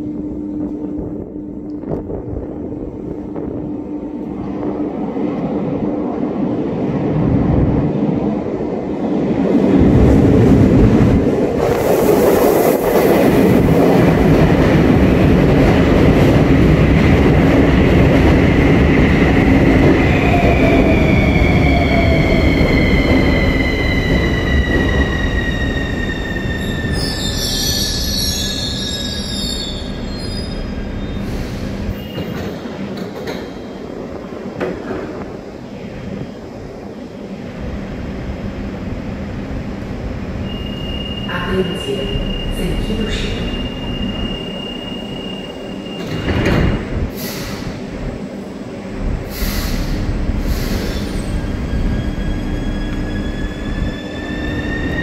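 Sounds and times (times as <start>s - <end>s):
short high squeal: 26.6s - 32.4s, 40.4s - 42.5s, 43.3s - 46.3s.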